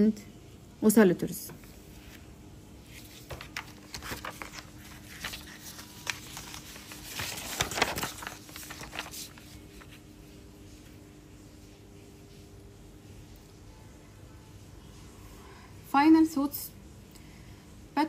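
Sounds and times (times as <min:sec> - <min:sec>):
paper sheets rustling: 0:01.7 - 0:11.0.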